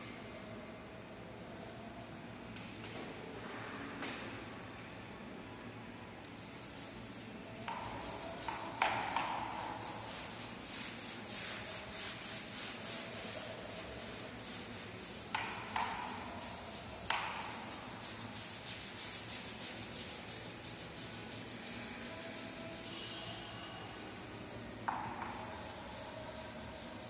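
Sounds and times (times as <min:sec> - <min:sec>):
brush scrubbing concrete: 0:06.6 - 0:27.0.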